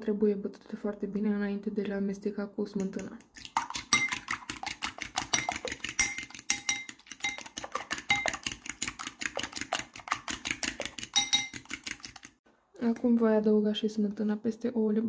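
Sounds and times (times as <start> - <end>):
fork clinking against bowl: 3.9 - 4.4, 5.2 - 8.5, 11.1 - 11.6.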